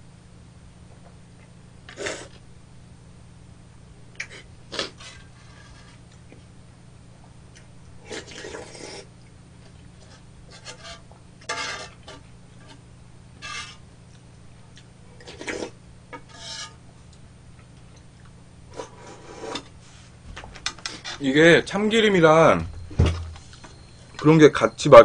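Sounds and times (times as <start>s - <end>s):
spoon scraping bowl: 10.1s - 12.8s, 13.4s - 13.8s, 15.2s - 16.8s.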